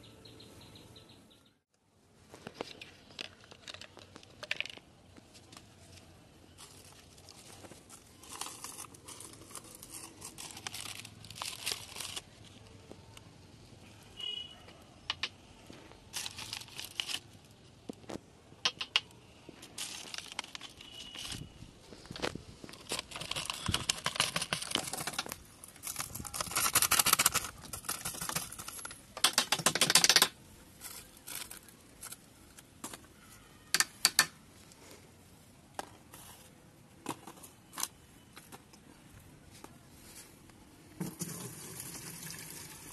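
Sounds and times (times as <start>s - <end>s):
plastic sachet crinkling: 6.5s - 12.9s, 16.0s - 17.7s, 19.6s - 28.9s.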